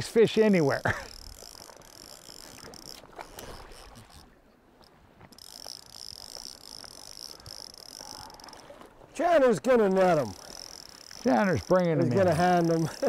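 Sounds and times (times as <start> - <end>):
boots sloshing through shallow water: 6.4 - 9.4.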